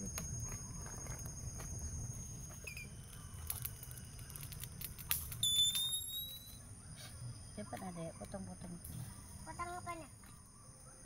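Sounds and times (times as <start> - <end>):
high-pitched insect drone: 5.3 - 7.4.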